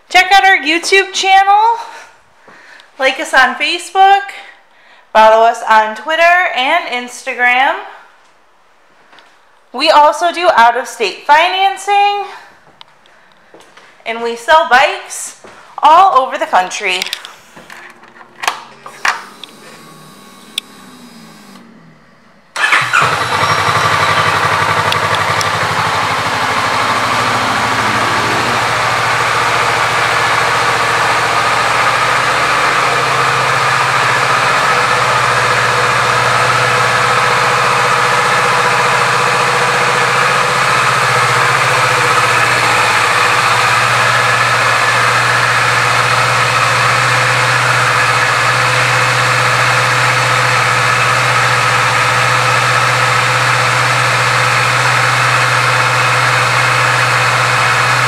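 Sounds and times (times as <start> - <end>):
motorcycle engine starting and idling: 17.0 - 21.9, 22.5 - 58.0.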